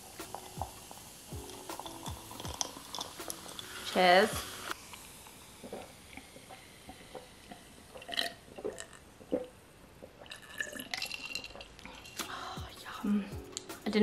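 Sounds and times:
sipping and swallowing: 5.7s - 12.0s.

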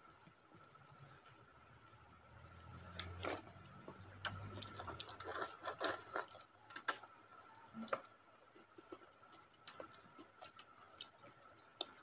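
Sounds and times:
noodles slurped and chewed: 0.2s - 7.1s.

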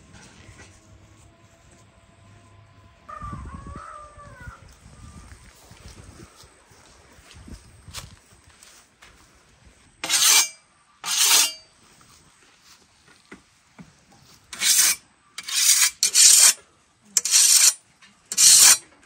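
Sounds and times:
whetstone sharpening scythe blade: 10.0s - 11.6s, 14.5s - 16.6s, 17.2s - 18.8s.

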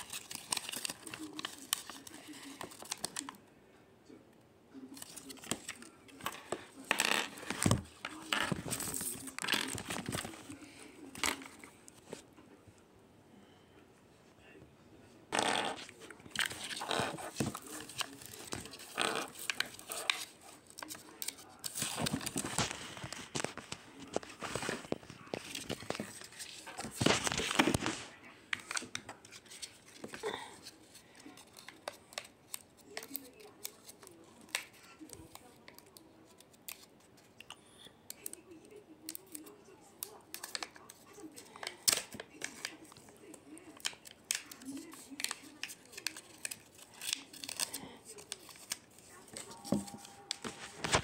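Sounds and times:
foil wrapper crinkling: 0.0s - 3.3s, 43.8s - 49.5s.

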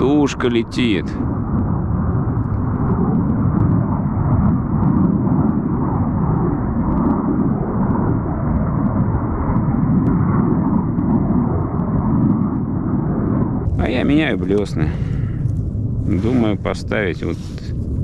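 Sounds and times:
aircraft engines rumbling overhead: 0.0s - 18.0s.

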